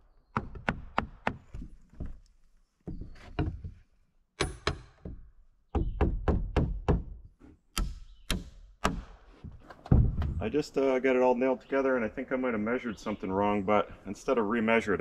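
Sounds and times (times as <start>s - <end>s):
hammer striking nails into wood: 0.3s - 1.5s, 4.4s - 9.2s.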